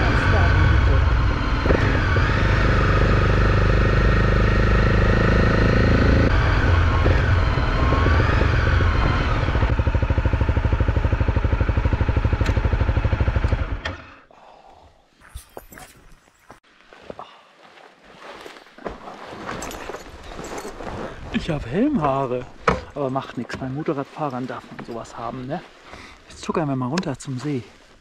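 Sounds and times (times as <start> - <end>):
motorcycle engine running: 0.0 - 13.9.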